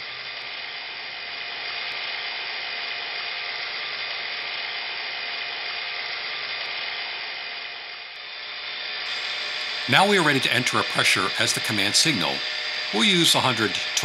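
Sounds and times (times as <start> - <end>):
vacuum pump whirring hiss: 9.0 - 14.0.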